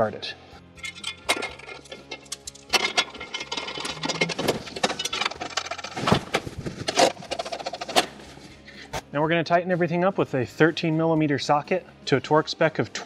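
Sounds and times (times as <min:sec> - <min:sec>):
metal clanking and rattling: 0:00.8 - 0:08.3.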